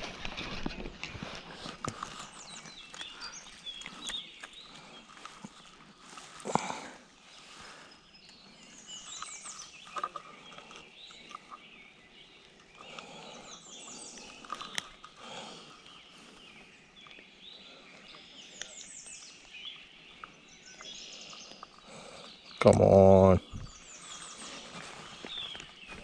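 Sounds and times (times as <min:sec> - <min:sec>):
songbirds singing: 0:00.0 - 0:26.0
small sharp clicks and rustles: 0:13.8 - 0:15.2.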